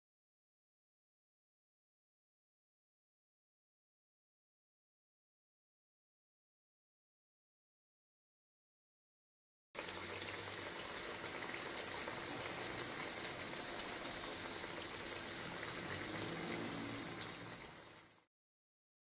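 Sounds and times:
oil bubbling and sizzling in a pan: 0:09.8 - 0:18.3.

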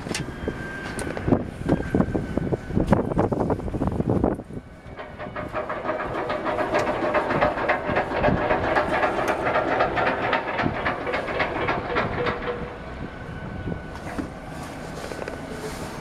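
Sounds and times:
boat diesel engine knocking: 0:04.9 - 0:13.1.

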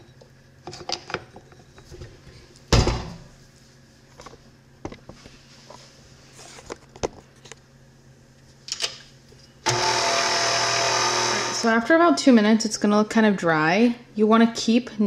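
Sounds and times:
stand mixer motor whining: 0:09.7 - 0:11.7.

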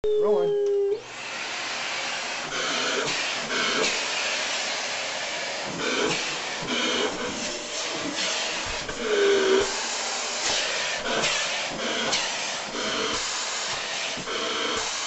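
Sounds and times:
short low tone: 0:00.0 - 0:01.0
vacuum cleaner airflow hiss: 0:01.0 - 0:15.0.

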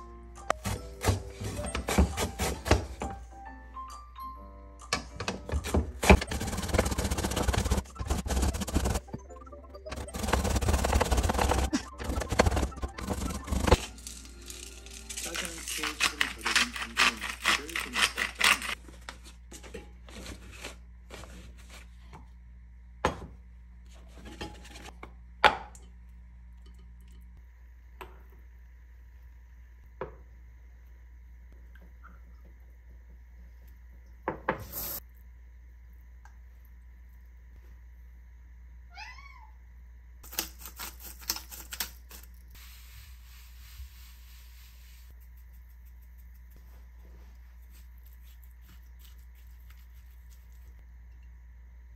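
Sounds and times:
salt pouring hiss: 0:34.6 - 0:35.1, 0:42.5 - 0:46.2.

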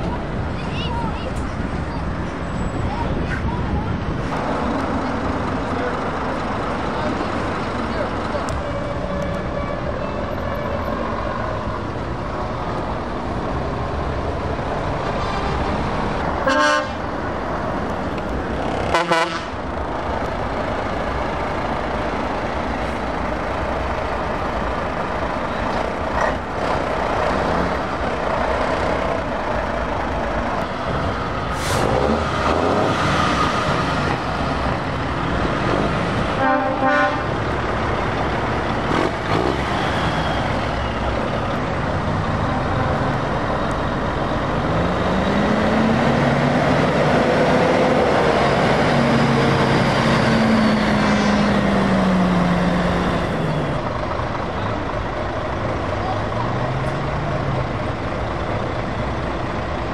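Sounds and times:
diesel truck engines running: 0:00.0 - 0:59.9
truck horn blasts: 0:16.5 - 0:17.0, 0:18.9 - 0:19.6, 0:36.4 - 0:37.4.

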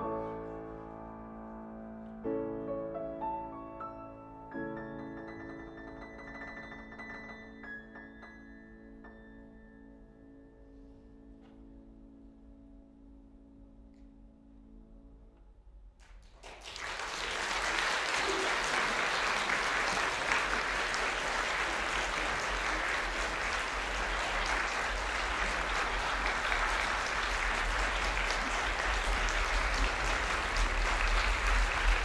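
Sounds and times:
audience applauding: 0:16.0 - 0:32.0.

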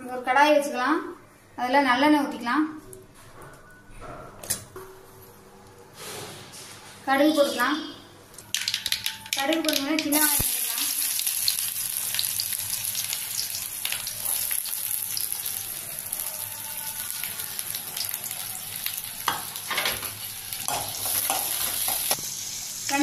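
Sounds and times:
shallots sizzling in hot oil: 0:08.5 - 0:23.0.

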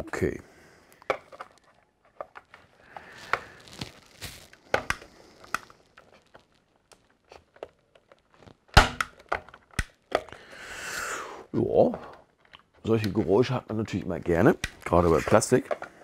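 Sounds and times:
plastic toy parts clicking together: 0:08.8 - 0:10.4, 0:12.3 - 0:16.0.

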